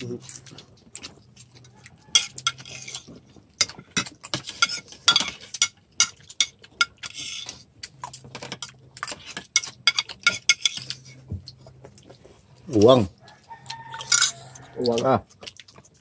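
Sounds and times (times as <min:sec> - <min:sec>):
spoon scraping and clinking on plate: 0:02.1 - 0:07.7, 0:08.3 - 0:11.3, 0:13.8 - 0:14.7.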